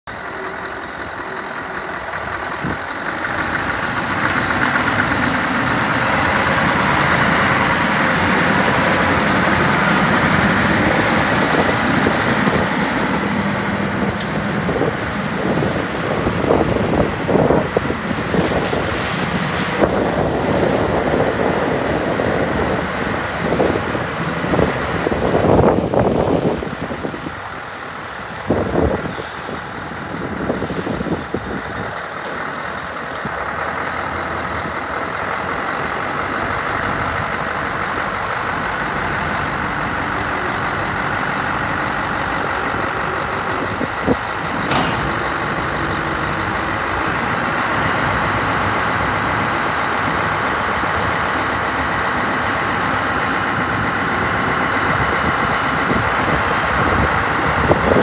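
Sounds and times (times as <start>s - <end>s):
diesel truck engine running: 0.0s - 58.0s
air brake hiss: 29.1s - 29.7s, 30.6s - 31.4s.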